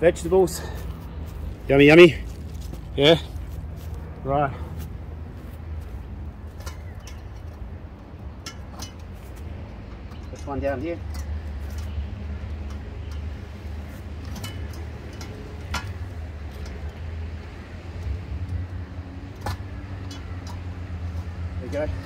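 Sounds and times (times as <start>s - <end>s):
steady low rumble: 0.0s - 10.4s
metal clinks and knocks: 6.4s - 17.1s.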